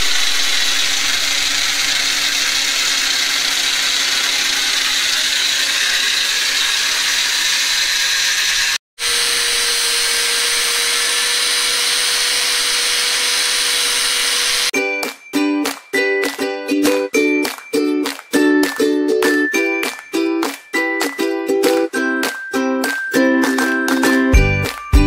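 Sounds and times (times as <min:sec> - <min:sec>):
angle grinder cutting steel: 0:00.0 - 0:14.8.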